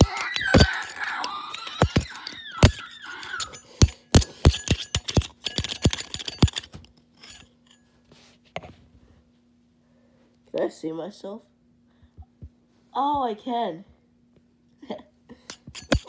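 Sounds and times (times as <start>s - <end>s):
spoon clinking on metal wheel: 0.0s - 7.8s, 15.5s - 16.0s.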